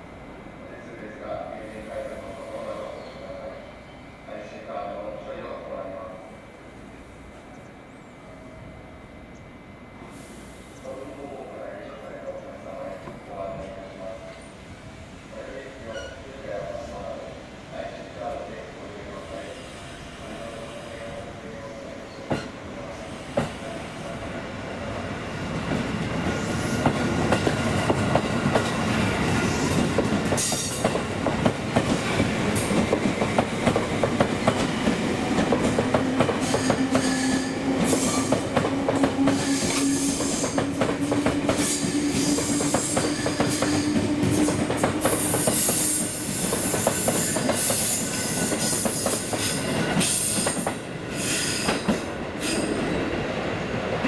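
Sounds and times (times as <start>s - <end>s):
electric train passing: 0.0s - 54.0s
train wheels clicking on rail joints: 25.6s - 52.9s.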